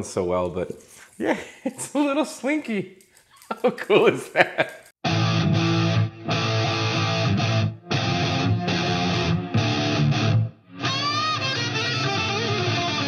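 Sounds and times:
rock music with electric guitar: 0:05.0 - 0:13.0.

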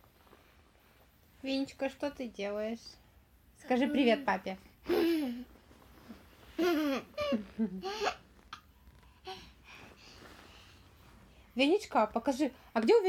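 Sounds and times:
toddler babbling and laughing: 0:06.6 - 0:08.2.

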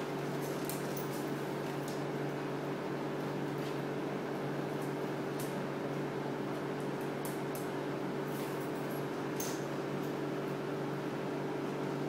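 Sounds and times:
appliance humming: 0:00.0 - 0:12.0.

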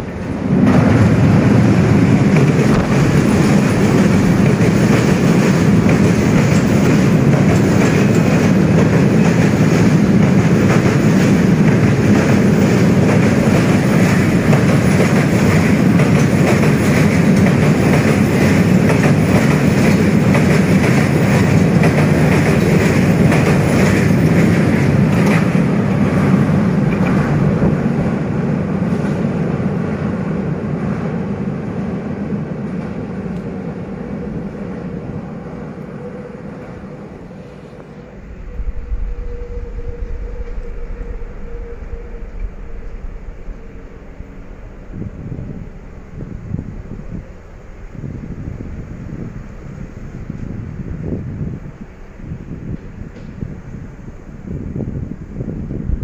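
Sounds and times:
rail joints clattering: 0:00.0 - 0:28.2
train wheels rumbling on rails: 0:00.0 - 0:56.0.

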